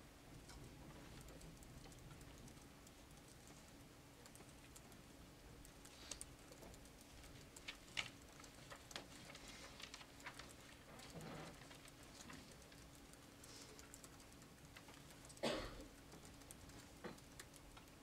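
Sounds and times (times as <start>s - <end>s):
steady low hum: 0.0s - 18.0s
faint clicks and taps: 0.3s - 18.0s.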